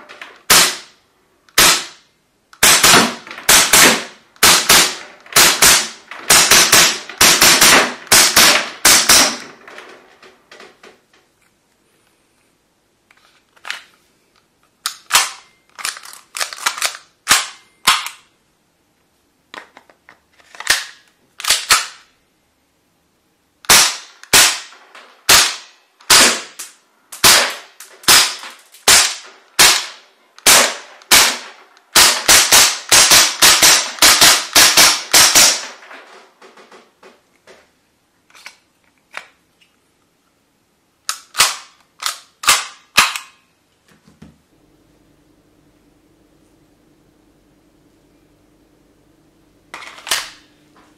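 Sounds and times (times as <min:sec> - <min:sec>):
magazine clicks: 0:14.8 - 0:18.3, 0:41.0 - 0:43.4.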